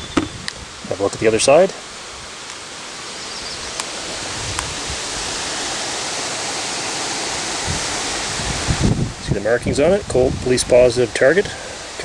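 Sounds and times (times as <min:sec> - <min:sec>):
wind on microphone: 0:00.0 - 0:01.3, 0:03.5 - 0:06.0, 0:07.1 - 0:12.0.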